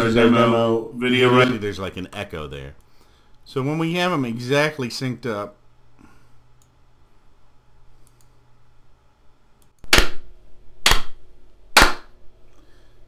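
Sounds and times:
sharp hand claps: 10.9s - 11.2s, 11.8s - 12.1s.

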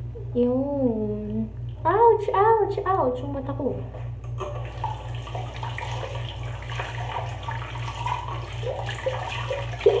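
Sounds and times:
tap water running into sink: 4.3s - 10.0s
water splashing on face: 4.4s - 10.0s.

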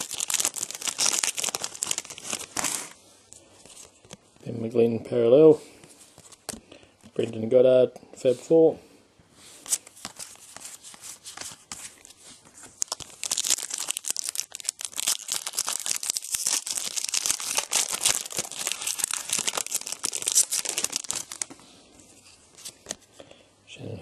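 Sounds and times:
foil wrapper tearing and crinkling: 0.0s - 3.0s, 12.8s - 21.6s.

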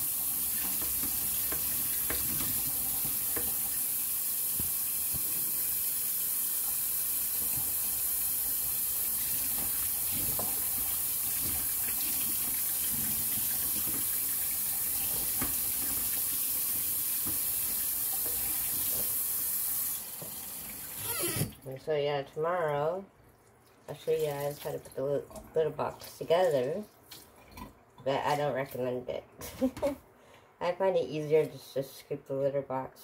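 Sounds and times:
tap running: 0.2s - 19.2s.

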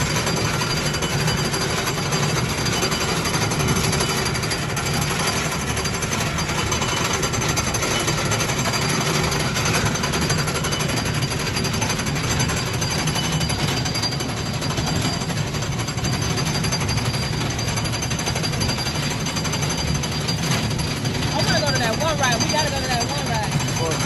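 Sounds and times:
ride car rattling rumble: 0.0s - 24.0s.

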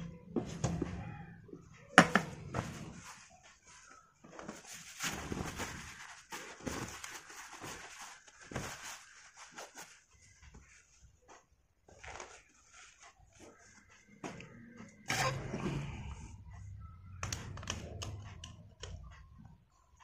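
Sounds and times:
handling rustling and ticks: 2.7s - 15.0s.

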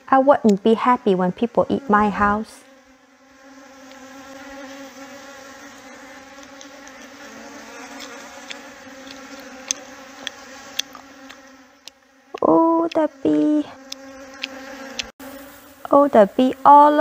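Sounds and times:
bees buzzing: 0.0s - 17.0s
wet mouth clicks chewing: 6.3s - 7.0s, 7.9s - 12.1s, 13.8s - 15.1s.

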